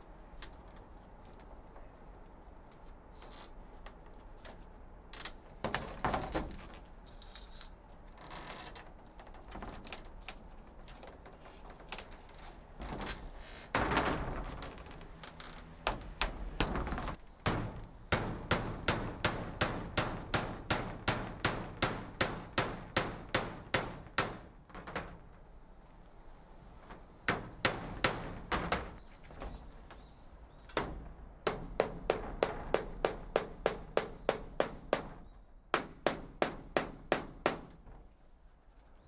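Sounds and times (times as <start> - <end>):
hammer striking nail: 17.4 - 24.5, 30.8 - 35.2, 35.8 - 37.8.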